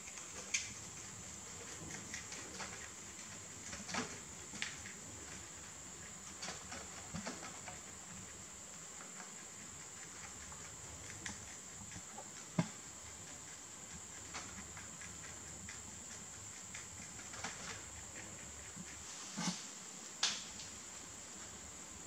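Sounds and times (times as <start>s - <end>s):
rabbits chewing leaves: 0.0s - 22.0s
steady high-pitched hiss: 0.0s - 22.0s.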